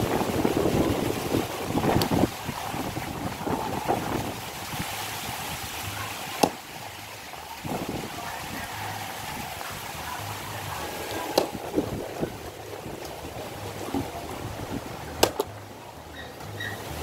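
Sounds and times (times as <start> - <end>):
axe chopping into log: 6.4 - 6.6, 11.3 - 11.6, 15.2 - 15.5.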